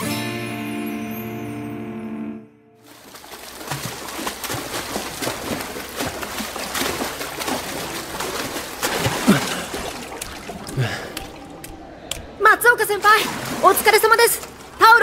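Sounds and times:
water splashing in a pool: 0:02.8 - 0:15.0.

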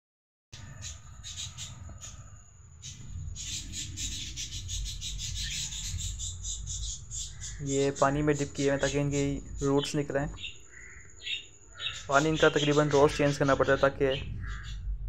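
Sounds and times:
rapid high-pitched animal chirping: 0:00.6 - 0:14.9
microphone handling rumble: 0:13.2 - 0:15.0.

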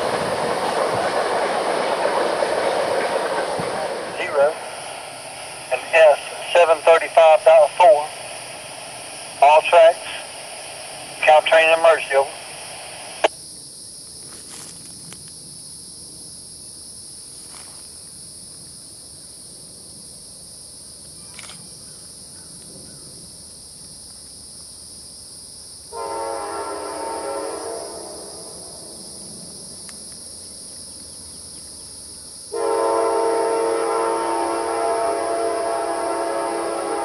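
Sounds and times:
train rumbling: 0:00.0 - 0:13.3, 0:26.0 - 0:37.0
locomotive air horn blasts: 0:25.9 - 0:28.5, 0:32.6 - 0:37.0.

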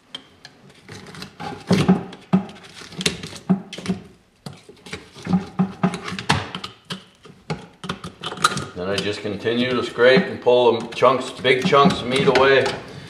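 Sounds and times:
screwdriver scraping bone: 0:04.9 - 0:12.8.

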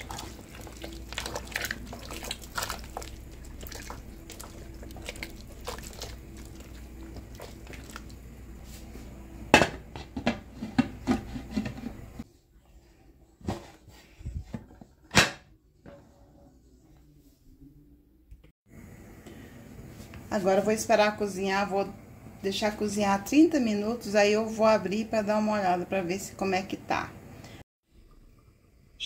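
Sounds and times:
spatula scraping pot: 0:00.0 - 0:08.2, 0:10.4 - 0:12.2.

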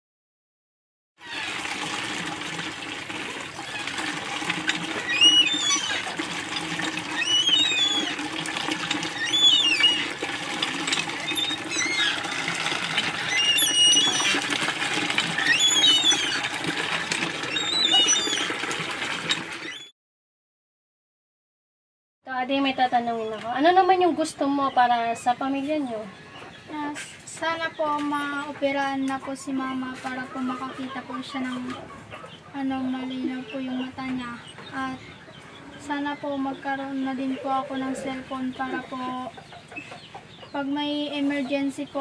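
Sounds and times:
water running out: 0:01.2 - 0:19.9
hand pump handle squeaking: 0:03.6 - 0:08.2, 0:08.9 - 0:19.9.

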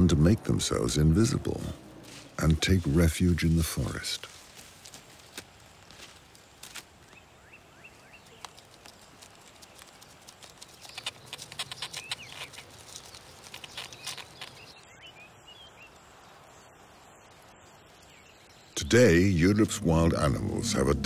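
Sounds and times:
crackles and rustles: 0:00.7 - 0:15.0
faint bird chirps: 0:07.0 - 0:09.9, 0:10.5 - 0:21.0.

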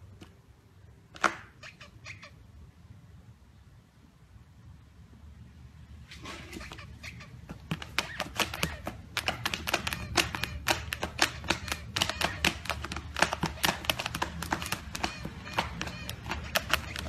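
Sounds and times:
puppy claws tapping on glass: 0:07.7 - 0:17.0.

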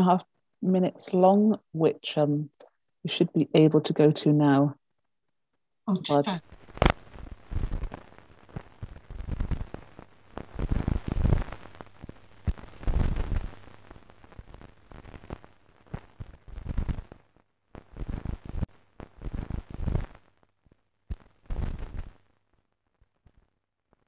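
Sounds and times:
crackling sputtering noise: 0:06.2 - 0:24.0.

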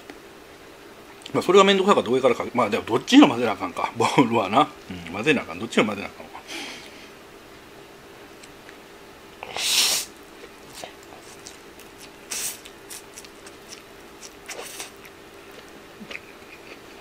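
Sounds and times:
chewing clicks: 0:10.4 - 0:16.9.

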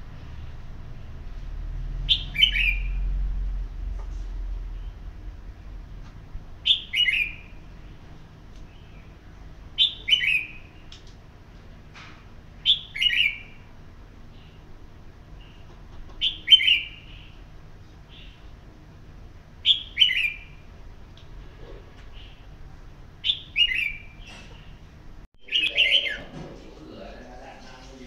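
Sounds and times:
bulbul singing bright phrase: 0:25.4 - 0:26.3.

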